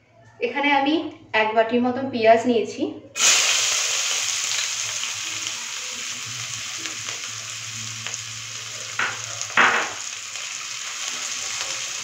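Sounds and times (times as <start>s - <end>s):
onions sizzling in hot oil: 3.2s - 12.0s.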